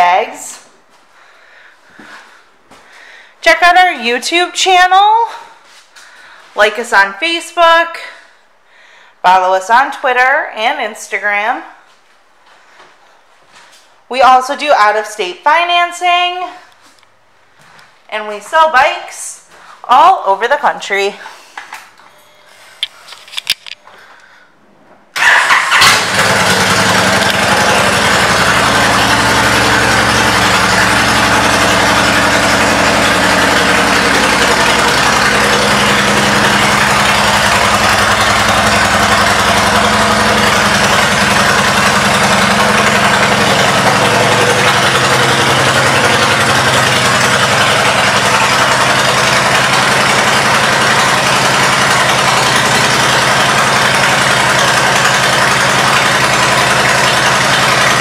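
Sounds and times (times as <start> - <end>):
motorcycle engine starting and idling: 25.0 - 58.0.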